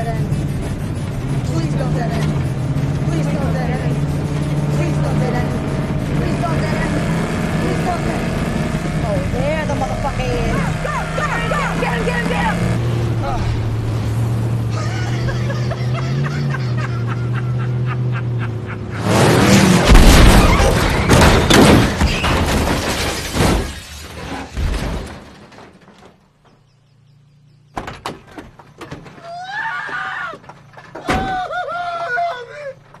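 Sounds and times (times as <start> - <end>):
car engine running hard: 0.0 - 21.0
tyres skidding: 0.0 - 33.0
car crash crunching metal: 19.0 - 26.4
scattered knocks: 27.7 - 29.2.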